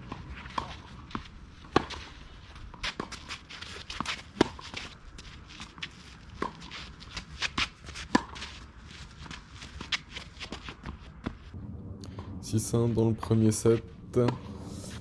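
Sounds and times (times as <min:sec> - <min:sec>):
racket hitting tennis ball: 0:00.0 - 0:04.9, 0:05.7 - 0:08.6
footsteps scuffing on clay: 0:00.3 - 0:11.6.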